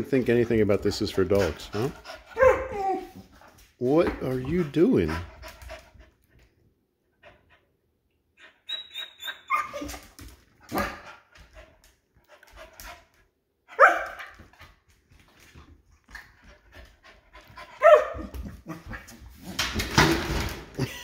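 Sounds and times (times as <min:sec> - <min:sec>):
dog barking: 0:02.4 - 0:02.8, 0:10.7 - 0:11.0, 0:13.7 - 0:14.3, 0:17.8 - 0:18.3
dog squeaking: 0:08.4 - 0:10.0.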